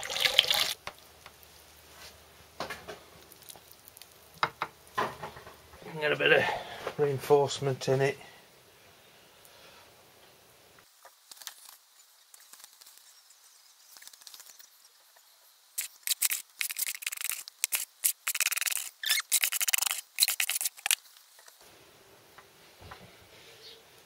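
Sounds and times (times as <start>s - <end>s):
scratchy rasping of cloth: 15.8s - 21.0s.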